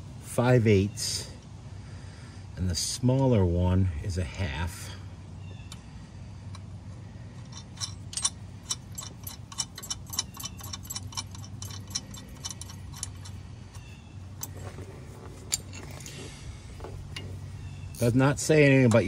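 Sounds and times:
steady low hum: 0.0s - 19.0s
ratchet wrench clicking: 7.4s - 16.1s.

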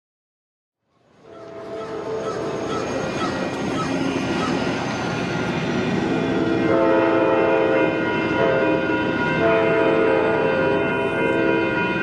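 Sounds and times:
train rumbling: 1.0s - 12.0s
locomotive horn blasts: 1.2s - 2.5s, 6.6s - 12.0s.

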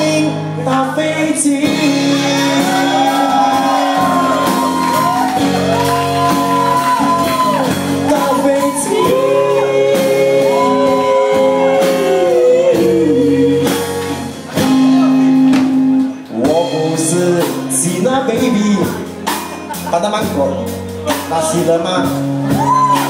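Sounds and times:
person singing long sliding notes: 0.0s - 14.0s
acoustic-electric guitar: 0.0s - 23.0s
drum kit: 0.0s - 23.0s.

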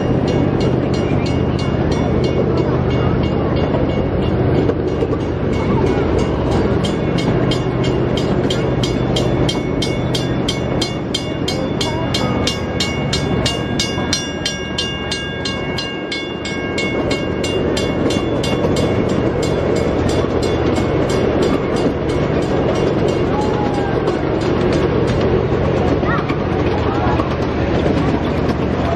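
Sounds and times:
miniature train rumbling: 0.0s - 28.9s
train track clicking: 0.0s - 28.9s.

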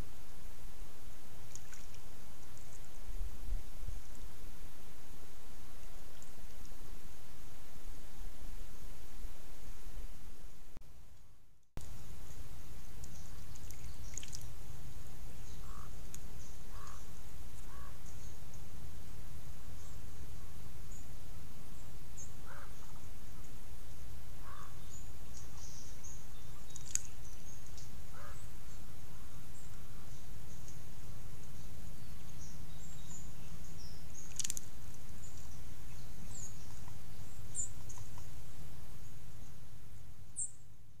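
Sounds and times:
faint high chirps and clicks: 13.0s - 14.5s, 15.4s - 18.6s, 22.2s - 28.8s, 29.6s - 38.4s
small animal short calls: 16.7s - 17.1s, 28.1s - 28.4s.

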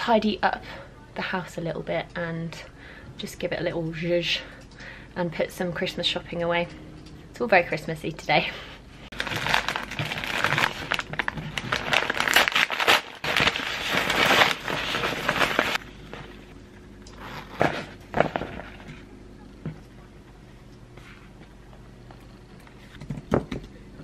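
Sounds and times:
packaging rustles: 9.1s - 16.3s
plastic and paper crinkling: 9.1s - 16.4s.

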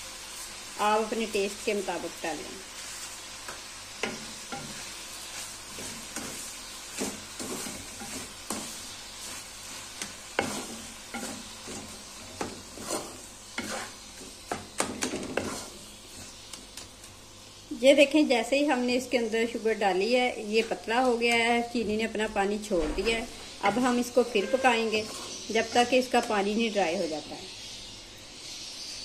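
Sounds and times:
frying sizzle: 0.0s - 29.0s
wooden spatula scraping pan: 4.0s - 16.5s, 23.8s - 25.8s.

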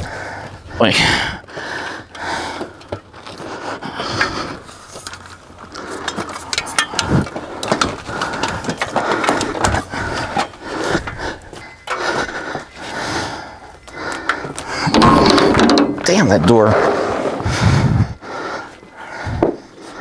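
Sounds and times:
metal ladder knocking and rattling: 14.9s - 16.5s.

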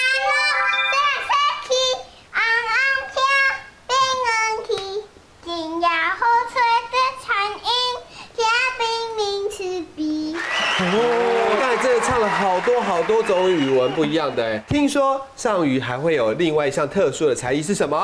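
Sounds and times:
girl singing unaccompanied: 0.0s - 10.4s.

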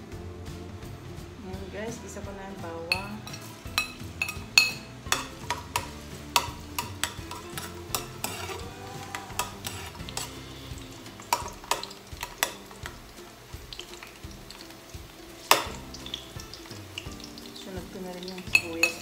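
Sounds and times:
garlic sizzling in oil: 0.3s - 19.0s
metal spoon clinking on pan: 2.9s - 10.4s, 11.2s - 13.0s, 15.4s - 17.6s, 18.2s - 19.0s.

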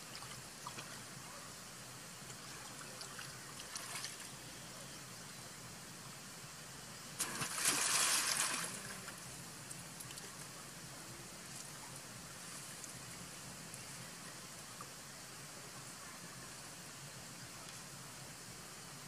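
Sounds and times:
trickle of running water: 0.0s - 1.4s, 2.0s - 4.5s, 7.1s - 18.3s
monkeys splashing in water: 7.2s - 9.2s.

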